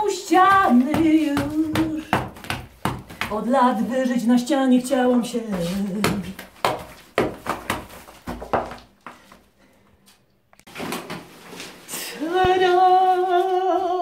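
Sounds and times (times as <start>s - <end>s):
hammer chipping plaster: 0.3s - 3.4s.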